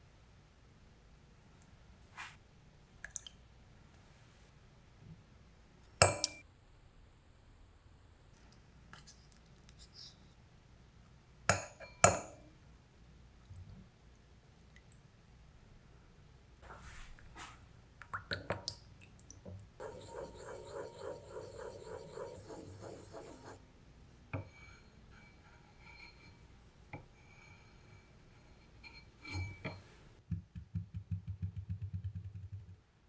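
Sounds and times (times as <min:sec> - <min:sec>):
spoon tapping bowl: 0:06.0 - 0:06.4
spoon stirring in bowl: 0:19.8 - 0:23.6, 0:24.4 - 0:29.8.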